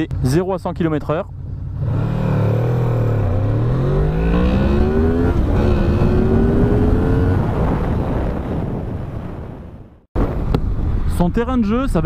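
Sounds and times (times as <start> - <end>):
motorcycle engine accelerating: 1.3 - 9.1.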